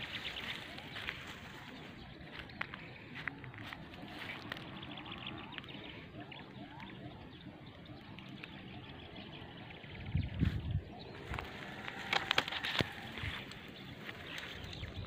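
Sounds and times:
bird calls and trills: 0:00.0 - 0:15.0
wind rumble on microphone: 0:09.6 - 0:15.0.

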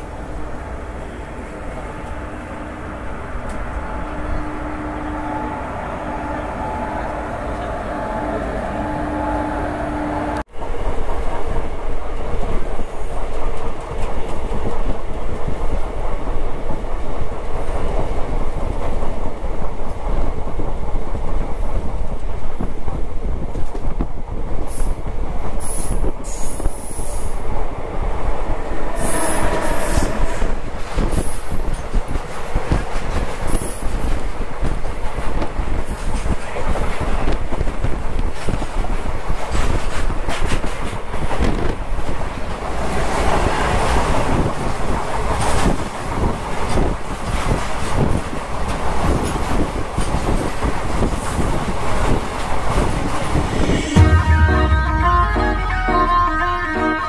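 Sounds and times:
train passing: 0:00.0 - 0:23.4, 0:24.6 - 0:34.9, 0:38.9 - 0:46.9, 0:50.8 - 0:57.0
wind rush: 0:01.9 - 0:55.2
train wheels clickety-clack: 0:10.6 - 0:53.8.

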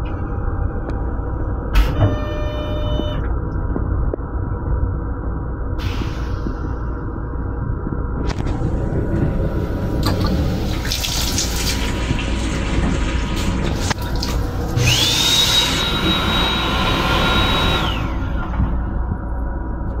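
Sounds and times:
low rumble of moving train: 0:00.0 - 0:20.0
toilet flushing with motor whine: 0:08.3 - 0:19.2
faucet water running into sink: 0:10.0 - 0:14.5.

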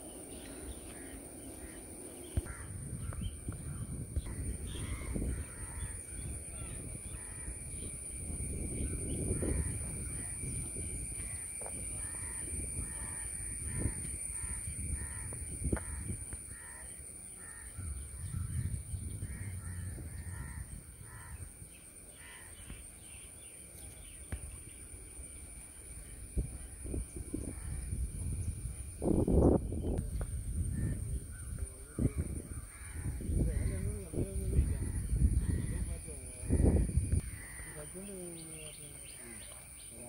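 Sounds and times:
crows cawing: 0:00.4 - 0:07.8, 0:08.8 - 0:10.6, 0:11.2 - 0:22.8, 0:30.7 - 0:38.2
low rumble: 0:17.8 - 0:21.5.

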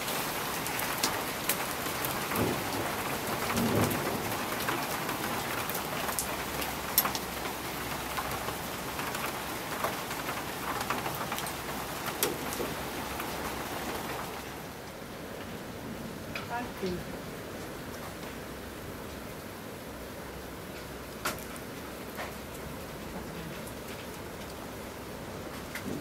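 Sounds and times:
thunderstorm rain: 0:00.0 - 0:19.2, 0:20.0 - 0:26.0
raindrops ticking close by: 0:00.0 - 0:26.0.

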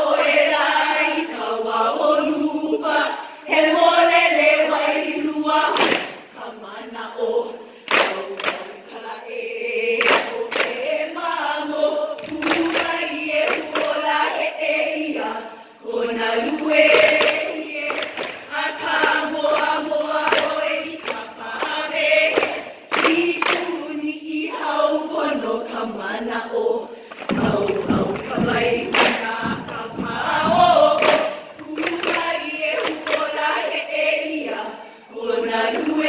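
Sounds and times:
women chanting in unison: 0:00.0 - 0:36.0.

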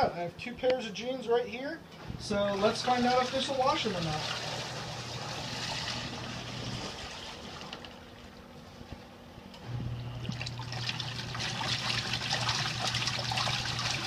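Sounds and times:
washer motor humming: 0:02.1 - 0:14.0
washer tub churning water: 0:02.2 - 0:09.0, 0:10.0 - 0:14.0
water sloshing: 0:10.2 - 0:14.0.

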